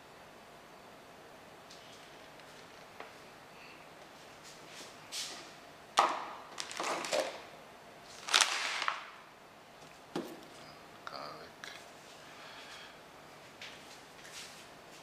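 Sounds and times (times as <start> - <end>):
plastic bag crinkling: 6.5 - 7.4, 8.1 - 9.2.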